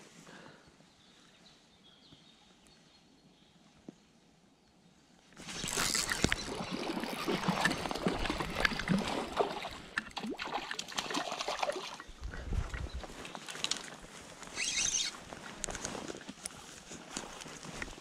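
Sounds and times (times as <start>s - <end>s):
fish splashing in water: 5.4s - 12.2s.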